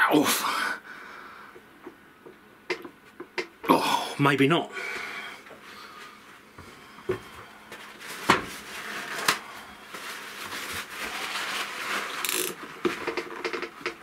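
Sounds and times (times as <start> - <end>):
sharp clicks and knocks: 1.8 - 3.6, 12.3 - 14.0
cloth rustling: 7.7 - 12.8.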